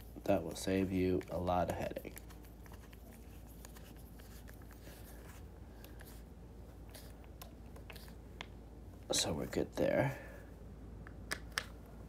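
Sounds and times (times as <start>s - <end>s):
clicks and scratches of hand work: 0.0s - 6.2s
steady low hum: 0.0s - 12.0s.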